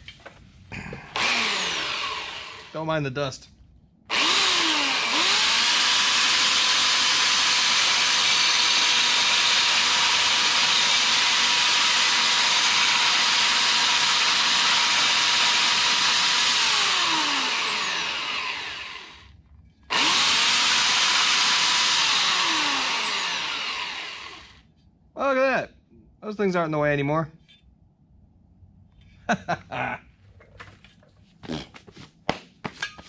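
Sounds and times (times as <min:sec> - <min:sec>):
power tool motor whine: 0:01.2 - 0:02.7, 0:04.1 - 0:19.3, 0:19.9 - 0:24.6.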